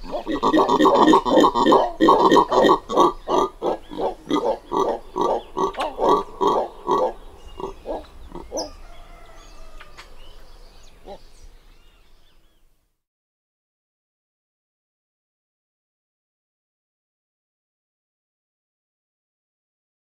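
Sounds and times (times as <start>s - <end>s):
howler monkeys grunting: 0.0s - 12.3s
faint birdsong: 0.0s - 12.9s.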